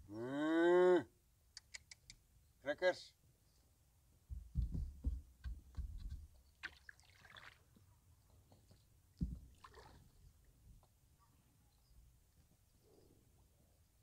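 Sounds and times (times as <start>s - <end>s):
water splashes and drips: 6.6s - 7.9s, 9.2s - 10.9s.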